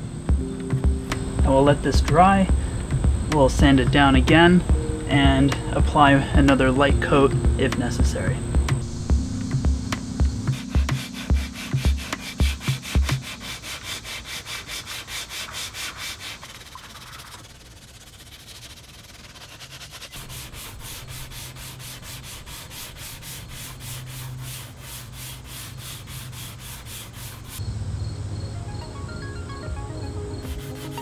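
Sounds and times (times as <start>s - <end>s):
deep thumps: 0.3s - 13.2s
sandpaper scraping on car panel: 10.5s - 27.6s, 30.4s - 31.0s.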